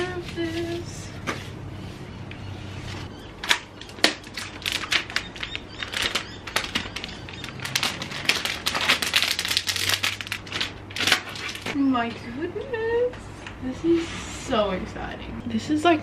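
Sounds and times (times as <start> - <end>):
plastic film crinkling: 3.4 - 11.8.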